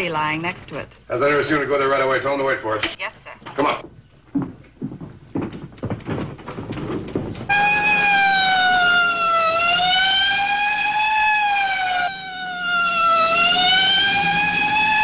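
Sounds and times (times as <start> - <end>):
quick thumps: 4.4 - 7.8
police siren wailing: 7.5 - 15.0.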